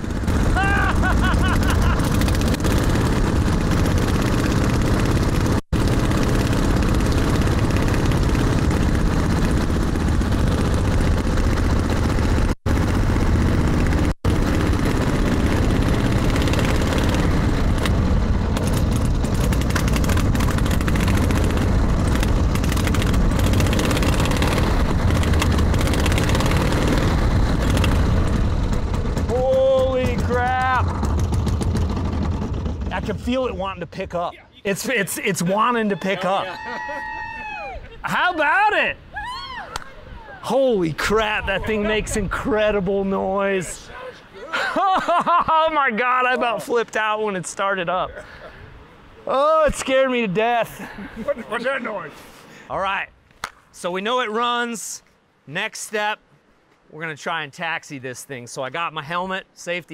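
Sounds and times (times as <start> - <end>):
propeller engine droning: 0.0 - 34.2, 40.5 - 43.8.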